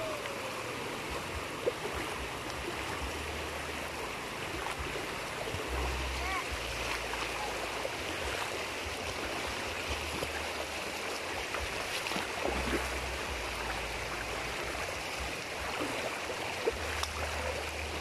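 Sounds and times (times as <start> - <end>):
low rumble: 0.0 - 10.7
creek water rushing: 0.0 - 18.0.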